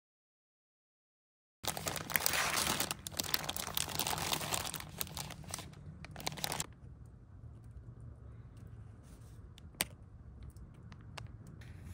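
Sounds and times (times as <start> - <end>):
fabric rustling and crinkling: 1.6 - 6.7.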